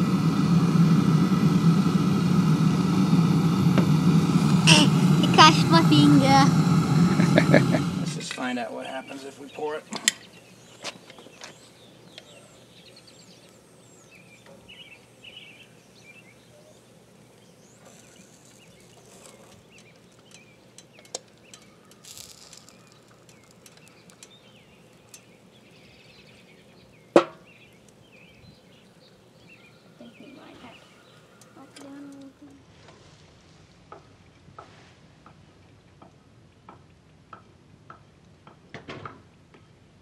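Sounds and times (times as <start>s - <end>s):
birds chirping: 3.9s - 32.3s.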